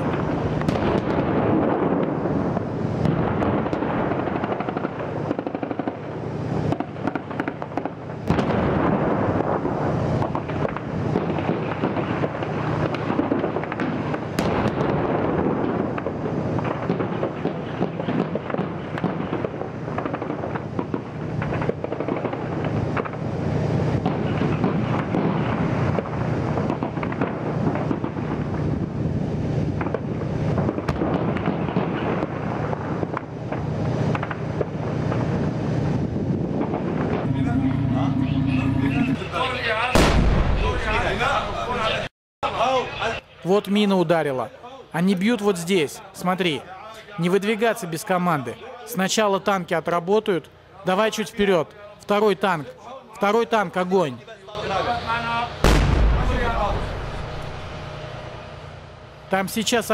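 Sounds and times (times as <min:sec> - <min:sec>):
gunfire crackle: 0:00.0 - 0:29.0, 0:29.7 - 0:35.5, 0:36.5 - 0:37.8, 0:39.9 - 0:41.1, 0:55.6 - 0:59.2
shell impact blasts: 0:55.6 - 0:58.7.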